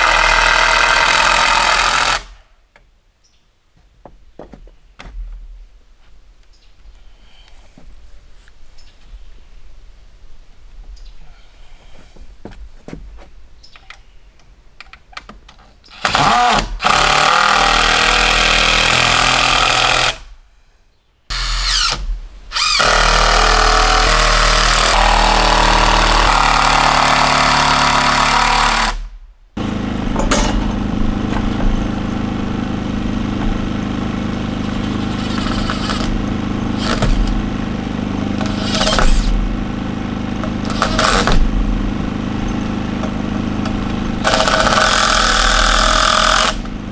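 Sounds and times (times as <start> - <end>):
steady motor running: 0.0 - 2.3, 22.6 - 46.9
power tool running: 0.0 - 2.4, 15.9 - 20.3, 21.3 - 46.9.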